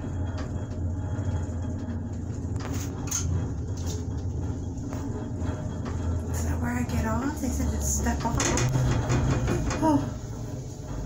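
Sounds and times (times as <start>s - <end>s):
gondola cabin rumble: 0.0s - 11.0s
light clicks and rattles: 1.6s - 10.2s.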